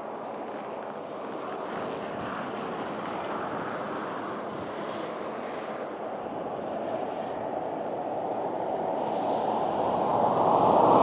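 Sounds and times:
highway traffic hiss: 0:05.8 - 0:11.0
vehicle approaching: 0:08.1 - 0:11.0.

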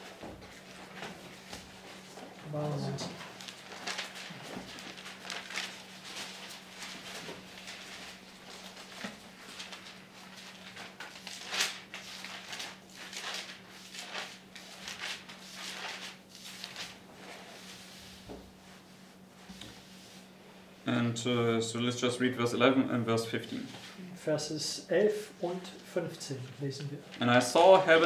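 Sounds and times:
low electrical hum: 0:00.0 - 0:28.0
paper pages rustling: 0:00.1 - 0:20.2, 0:25.8 - 0:28.0.

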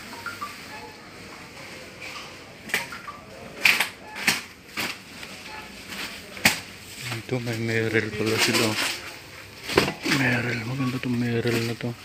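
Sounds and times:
faint background noise: 0:00.0 - 0:12.0.

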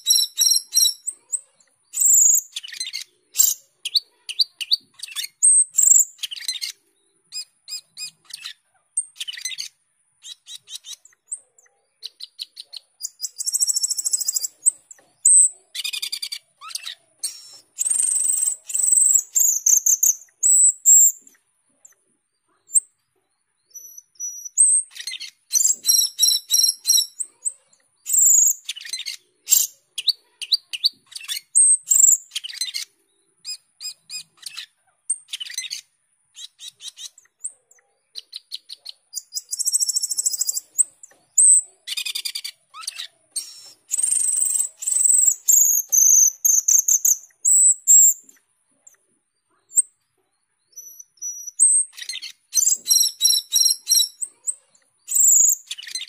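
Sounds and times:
starling singing: 0:00.0 - 0:21.4, 0:23.7 - 0:37.6, 0:38.2 - 0:48.4, 0:50.7 - 0:56.0.

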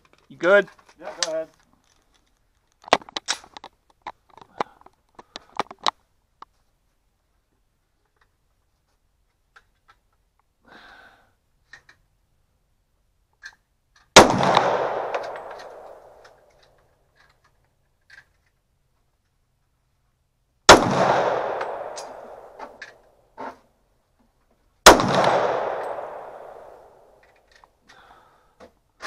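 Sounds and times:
pistol shots with echo: 0:14.2 - 0:16.3, 0:20.7 - 0:22.8, 0:24.8 - 0:27.2.

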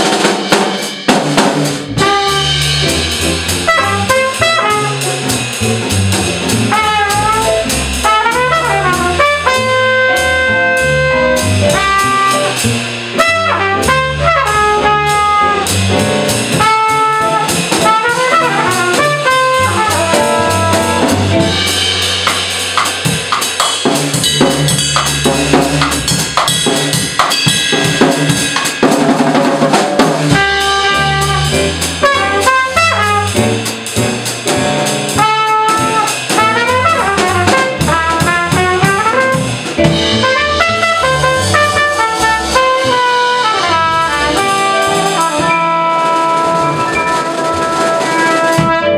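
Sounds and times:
drum kit with cymbal strikes: 0:00.0 - 0:48.9
upright bass: 0:01.1 - 0:28.6, 0:30.0 - 0:48.9
trumpet lead line: 0:01.9 - 0:05.3, 0:06.7 - 0:21.6, 0:30.3 - 0:33.7, 0:35.2 - 0:48.9.

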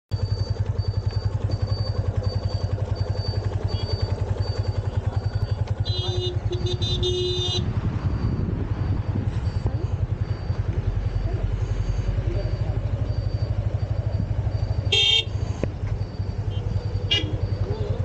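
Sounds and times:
faint high beep: 0:00.1 - 0:18.0
horn honking: 0:05.7 - 0:07.8, 0:14.8 - 0:15.5, 0:16.5 - 0:17.5.

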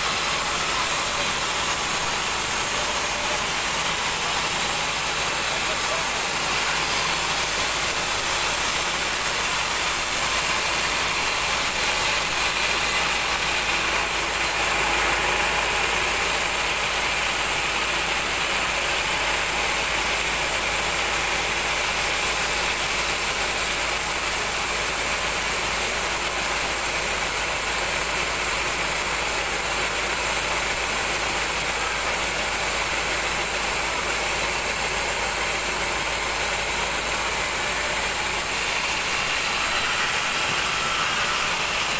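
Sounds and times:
band sawmill whining: 0:00.0 - 0:41.9.

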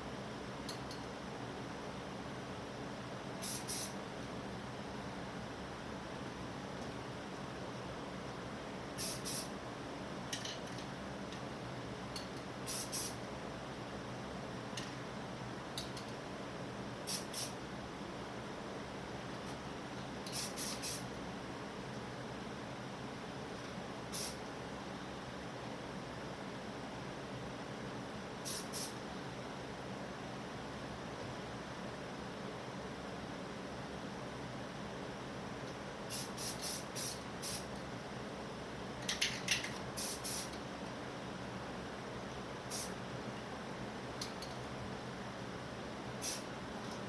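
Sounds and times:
steady background hiss: 0:00.0 - 0:47.0
aerosol spray can hissing: 0:03.4 - 0:04.0, 0:09.0 - 0:09.5, 0:12.7 - 0:13.2, 0:17.1 - 0:17.6, 0:20.3 - 0:21.0, 0:24.1 - 0:24.4, 0:28.5 - 0:29.0, 0:36.1 - 0:37.7, 0:40.0 - 0:40.5, 0:42.7 - 0:43.0, 0:46.2 - 0:46.5.

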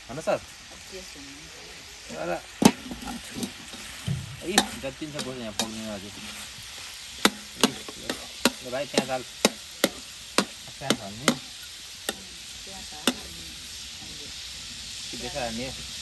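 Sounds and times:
food sizzling in a pan: 0:00.0 - 0:16.0
utensil knocking and scraping pan: 0:02.6 - 0:11.5.

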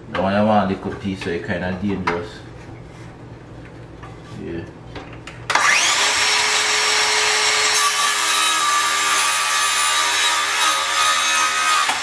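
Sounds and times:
circular saw cutting wood: 0:05.5 - 0:12.0.

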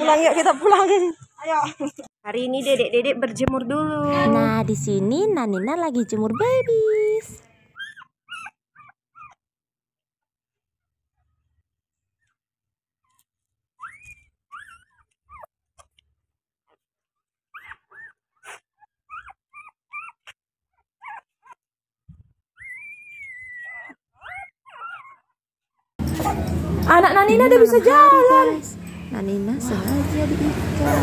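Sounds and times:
puppies whimpering: 0:05.0 - 0:09.4, 0:13.8 - 0:15.5, 0:16.7 - 0:21.8, 0:22.4 - 0:25.4, 0:30.7 - 0:31.0.

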